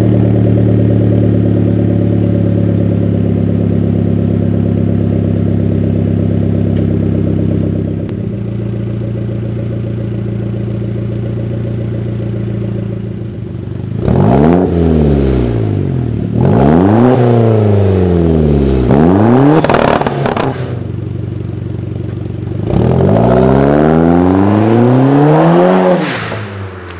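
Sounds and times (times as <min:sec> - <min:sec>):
car engine idling: 0:00.0 - 0:14.3, 0:20.0 - 0:23.4
car engine revving: 0:00.0 - 0:26.9
car accelerating hard: 0:14.0 - 0:15.7, 0:16.4 - 0:20.8, 0:22.6 - 0:26.9.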